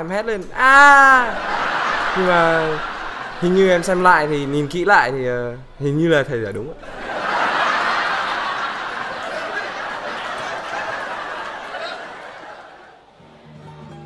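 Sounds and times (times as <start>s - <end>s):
students laughing: 0.9s - 5.8s, 6.8s - 13.1s
guitar music: 13.2s - 14.0s.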